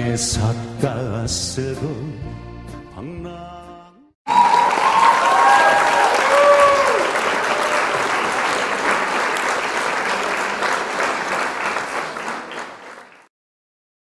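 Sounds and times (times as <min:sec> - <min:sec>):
audience applause: 0:04.3 - 0:13.3.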